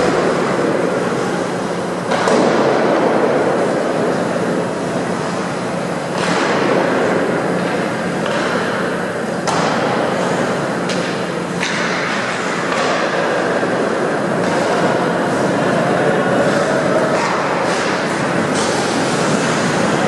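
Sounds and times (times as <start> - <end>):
steady low hum: 0.0 - 20.0
stick and puck clacks: 2.1 - 4.1, 6.1 - 15.7, 16.4 - 20.0.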